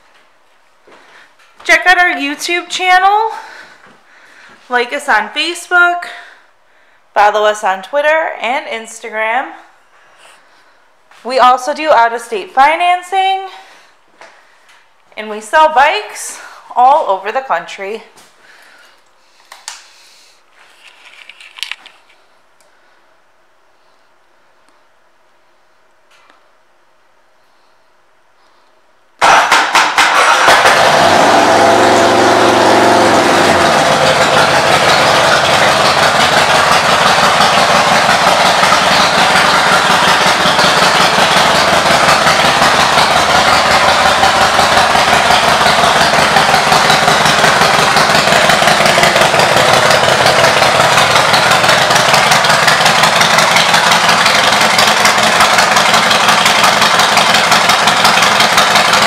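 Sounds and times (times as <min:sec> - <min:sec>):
motorcycle engine starting and idling: 0:29.2 - 0:59.0.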